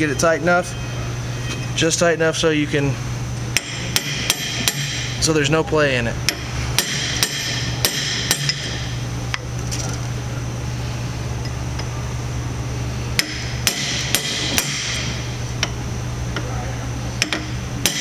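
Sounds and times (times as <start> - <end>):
steady low hum: 0.0 - 18.0
hammer striking chisel: 3.6 - 5.0, 6.3 - 8.8, 13.2 - 15.0, 17.2 - 18.0.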